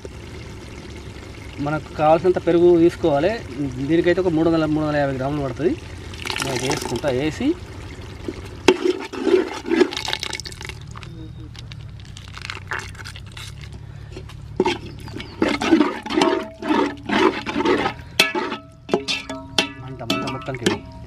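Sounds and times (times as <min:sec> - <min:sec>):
wet sloppy stirring: 0:05.5 - 0:21.0.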